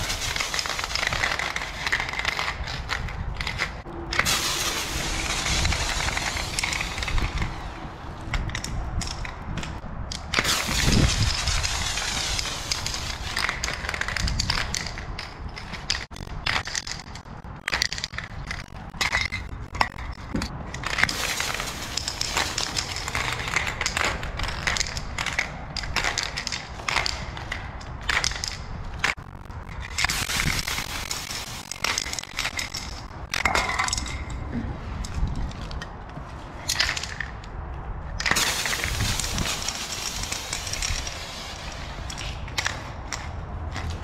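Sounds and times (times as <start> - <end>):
spray paint can hissing: 0.0 - 1.6, 4.1 - 8.7, 10.4 - 14.9, 21.1 - 25.0, 29.8 - 33.0, 38.3 - 42.4
sharp clicks and crackles: 0.0 - 44.0.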